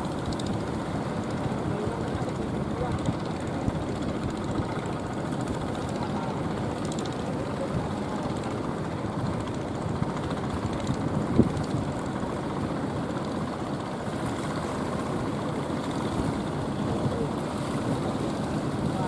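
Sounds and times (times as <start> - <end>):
boat engines running: 0.0 - 19.0
wind on microphone: 9.1 - 12.1.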